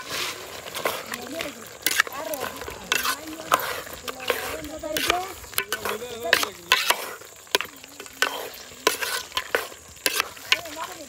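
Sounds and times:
spoon scraping a pot: 0:00.0 - 0:10.7
food sizzling: 0:00.0 - 0:11.0.

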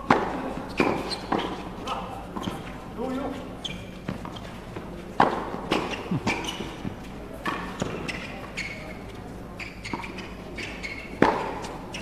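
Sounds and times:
racket striking tennis ball: 0:00.0 - 0:01.7, 0:05.2 - 0:08.2, 0:11.2 - 0:11.8
tennis ball bouncing: 0:00.0 - 0:02.8, 0:03.8 - 0:08.6, 0:09.8 - 0:12.0.

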